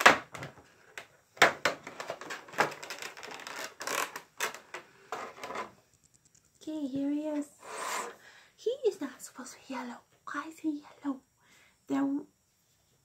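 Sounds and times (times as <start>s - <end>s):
plastic packaging crinkling: 1.7s - 4.8s.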